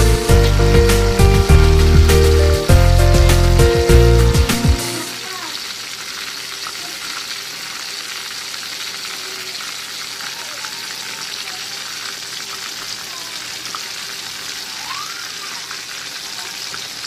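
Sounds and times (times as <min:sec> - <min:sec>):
background music: 0:00.0 - 0:05.2
fish sizzling in oil: 0:00.0 - 0:17.0.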